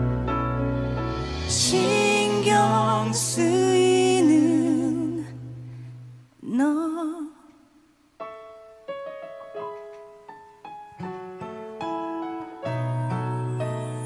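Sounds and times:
person singing with vibrato: 0:01.4 - 0:07.8.

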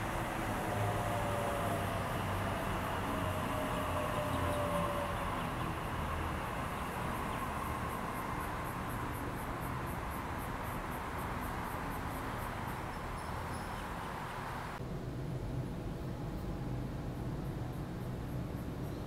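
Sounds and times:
train wheels rumbling on track: 0:00.0 - 0:13.7.

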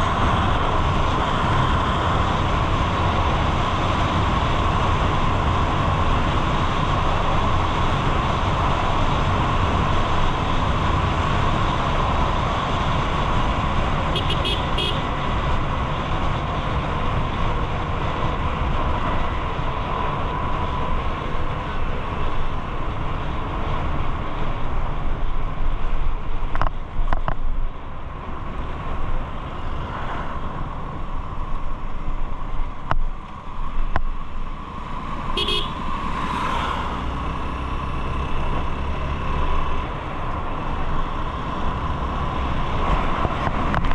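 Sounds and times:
highway traffic noise: 0:00.0 - 0:43.9
vehicle horn toots: 0:14.1 - 0:15.1, 0:35.4 - 0:35.8.

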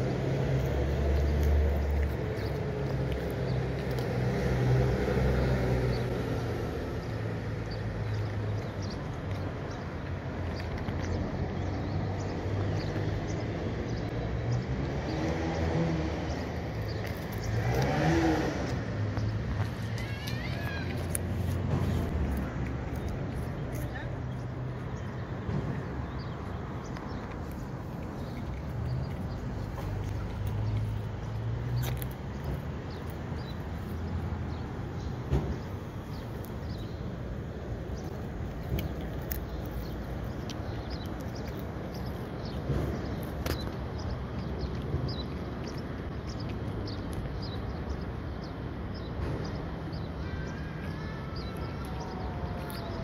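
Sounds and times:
cat crunching dried fish: 0:00.0 - 0:04.5, 0:20.2 - 0:24.9, 0:37.8 - 0:43.4
vehicle engine rumbling: 0:00.0 - 0:53.0.

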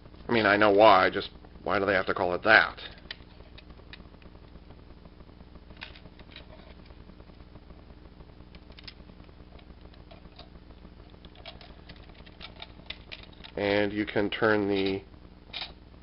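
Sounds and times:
low hum: 0:00.0 - 0:16.0
plastic toy clicking and rubbing: 0:11.2 - 0:13.7.

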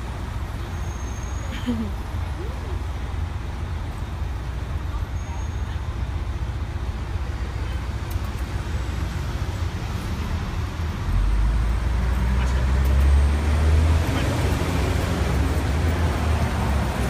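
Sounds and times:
city traffic rumble: 0:00.0 - 0:17.0
heavy vehicle passing: 0:05.6 - 0:17.0.

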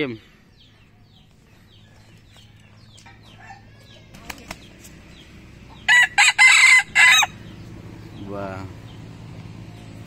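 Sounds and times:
rooster crowing: 0:05.9 - 0:07.4.

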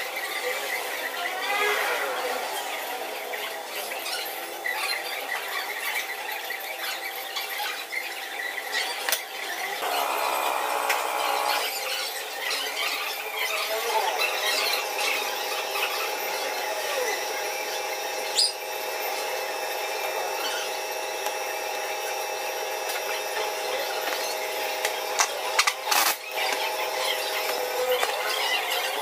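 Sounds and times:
steady whine of held tones: 0:09.8 - 0:11.7
pneumatic impact wrench: 0:09.8 - 0:11.8, 0:25.6 - 0:26.4.

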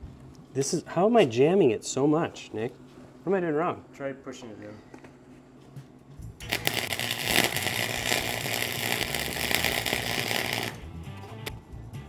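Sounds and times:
welder arc crackling: 0:06.4 - 0:10.8.

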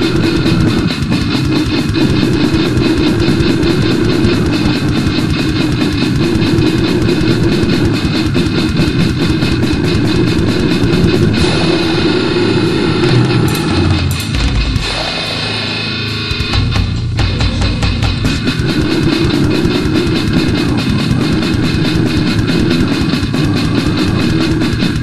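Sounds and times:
fast drumming: 0:00.0 - 0:15.6, 0:16.3 - 0:25.0
distorted guitars: 0:00.0 - 0:25.0.

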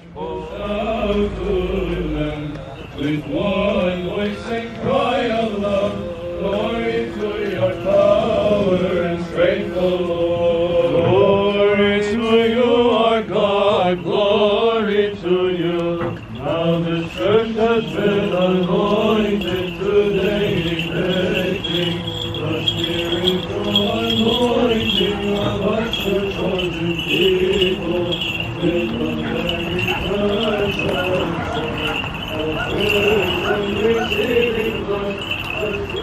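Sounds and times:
men chanting a hymn: 0:00.0 - 0:36.0.

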